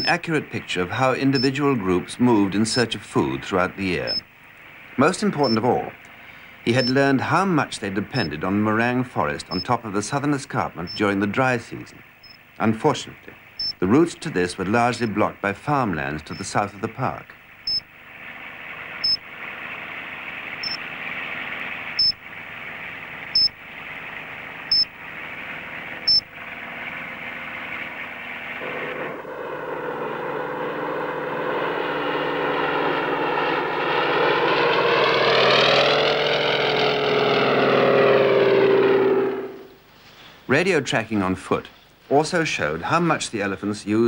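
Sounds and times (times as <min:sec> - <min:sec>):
light aircraft engine droning: 0:00.0 - 0:40.6
light aircraft passing by: 0:17.6 - 0:39.8
receiver short high bleeps: 0:22.0 - 0:22.2, 0:23.4 - 0:23.6, 0:24.7 - 0:24.9, 0:26.1 - 0:26.3.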